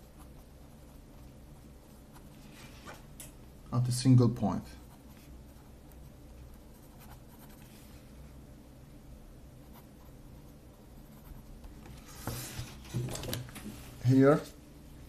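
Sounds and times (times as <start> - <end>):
pen scratching on paper: 4.8 - 7.7, 9.6 - 11.5.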